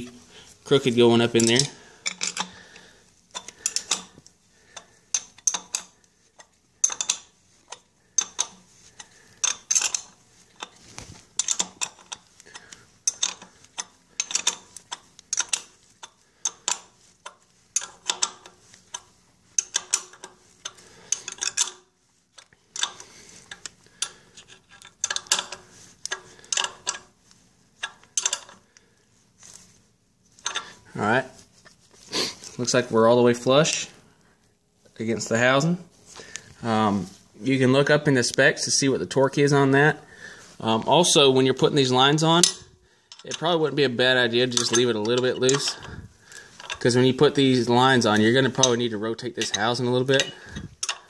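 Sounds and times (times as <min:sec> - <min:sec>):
wrench clicking on bolt: 0:01.4 - 0:02.5, 0:04.8 - 0:05.9, 0:06.8 - 0:08.6, 0:11.4 - 0:12.2, 0:13.0 - 0:21.8, 0:22.4 - 0:27.1, 0:27.8 - 0:28.6, 0:50.2 - 0:51.0.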